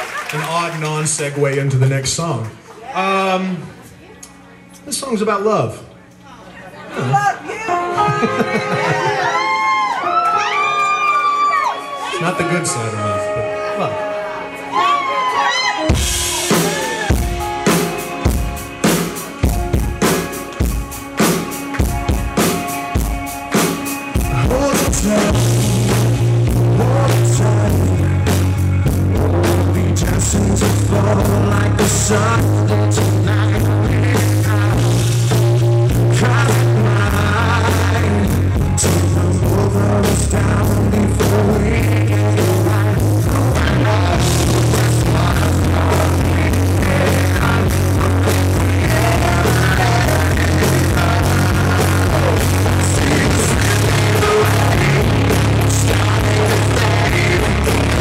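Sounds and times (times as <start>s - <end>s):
live rock band: 7.0s - 58.0s
drum beat: 15.9s - 32.4s, 40.1s - 58.0s
heavy bass line: 24.2s - 58.0s
man singing lead vocal: 24.2s - 58.0s.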